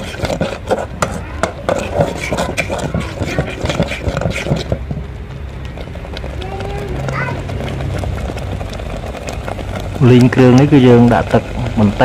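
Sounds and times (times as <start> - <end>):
spatula scraping a pan: 0.0 - 5.0
fish paste sizzling: 0.0 - 12.0.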